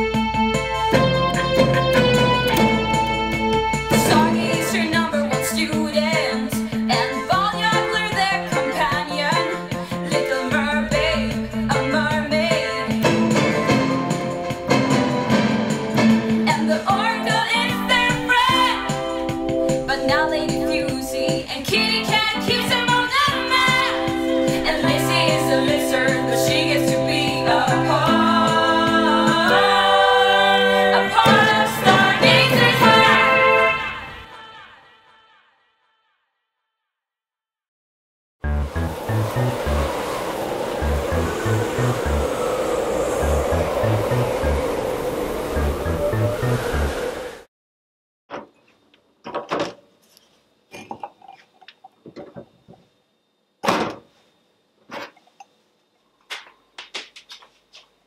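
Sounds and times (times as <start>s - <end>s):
voices singing held chords: 24.7s - 34.7s
crockery clinking on counter: 50.7s - 51.5s.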